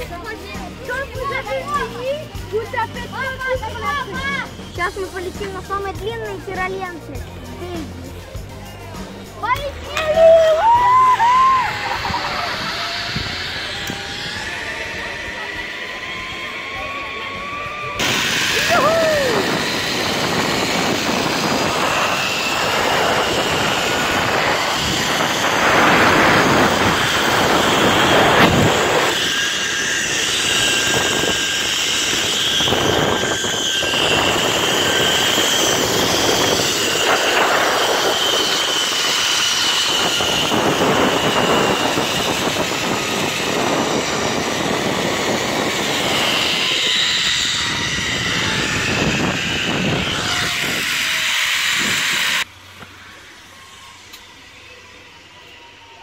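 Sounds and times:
pulley whirring whine on cable: 0.0s - 56.0s
wind on microphone: 9.6s - 52.5s.

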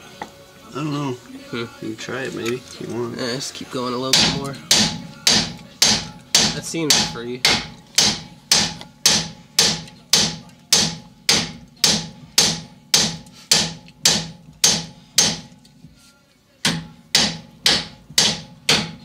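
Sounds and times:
hammer blows on steel: 4.1s - 15.5s.

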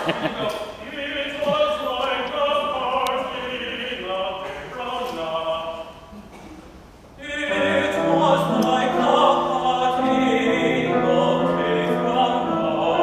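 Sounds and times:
man singing art song: 0.3s - 6.0s, 7.2s - 13.0s
grand piano accompaniment: 7.2s - 13.0s.

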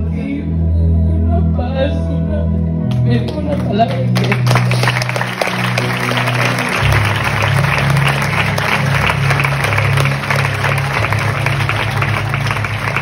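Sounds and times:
slow music with low chords: 0.0s - 13.0s
congregation applauding: 3.3s - 13.0s.

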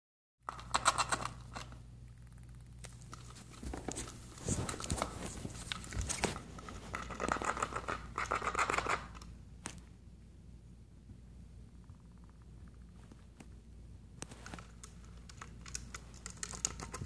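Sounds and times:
squirrel gnawing plastic bottle: 0.4s - 9.3s, 14.3s - 17.0s.

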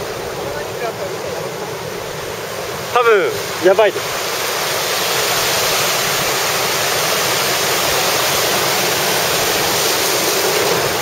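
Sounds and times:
surf breaking on rocks: 0.0s - 11.0s.

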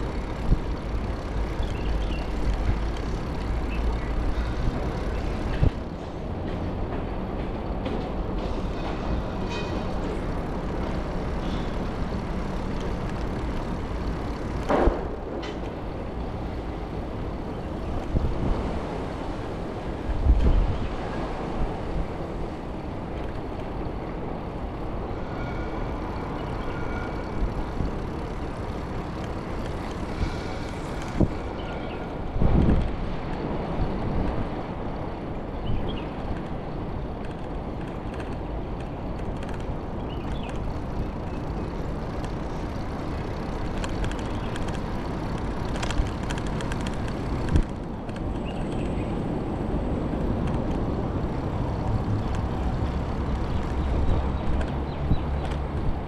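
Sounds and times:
bicycle tyres rolling over brick: 39.6s - 49.4s.

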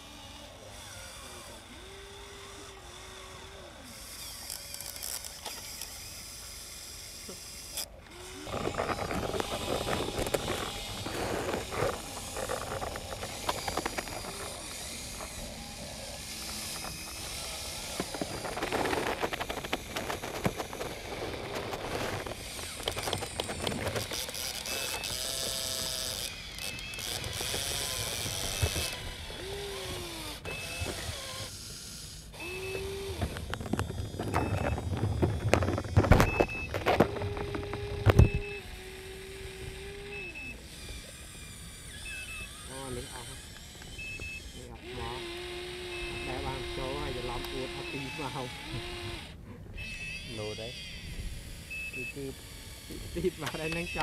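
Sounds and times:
small electric motors whining: 0.0s - 54.0s
gears clicking: 0.4s - 54.0s
wet mud scraping: 8.3s - 30.0s.

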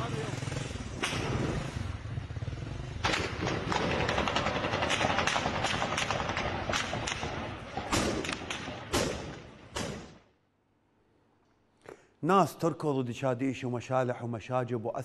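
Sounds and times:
steady gunfire crackle: 2.9s - 10.3s
rifle gunshots: 3.0s - 10.2s.

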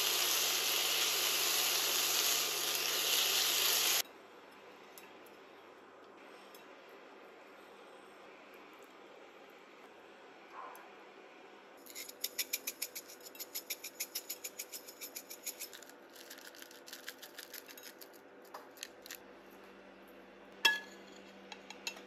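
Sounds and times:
metal spoon clinking on plate: 20.7s - 22.0s.

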